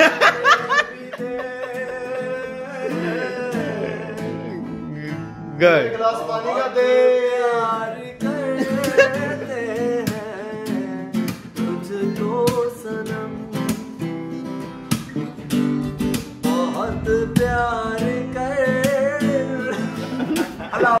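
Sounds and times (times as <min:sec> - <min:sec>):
person singing: 0:00.0 - 0:14.0, 0:16.4 - 0:21.0
acoustic guitar strumming: 0:00.0 - 0:21.0.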